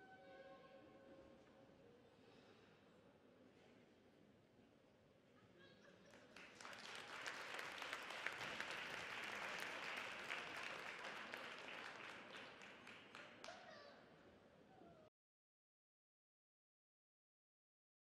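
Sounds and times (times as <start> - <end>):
audience applauding: 6.1 - 13.5.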